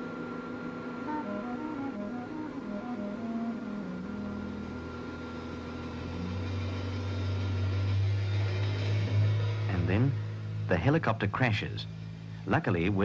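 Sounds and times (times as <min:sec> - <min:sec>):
low steady drone: 0:00.0 - 0:13.0
soft soundtrack notes: 0:01.0 - 0:07.9.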